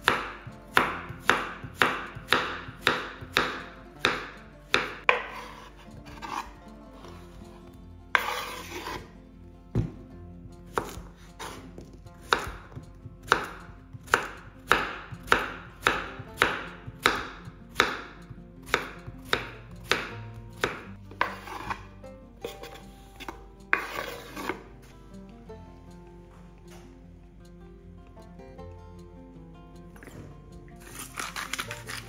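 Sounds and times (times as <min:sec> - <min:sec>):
knife chopping on wooden board: 0:00.0 - 0:07.3, 0:08.1 - 0:09.1, 0:09.7 - 0:10.1, 0:10.7 - 0:24.6, 0:30.0 - 0:32.0
slices scraped off board: 0:00.0 - 0:09.2, 0:18.7 - 0:24.7, 0:30.8 - 0:32.0.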